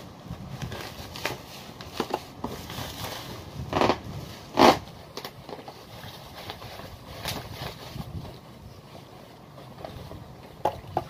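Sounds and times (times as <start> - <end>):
bubble wrap crinkling: 0.2 - 8.5.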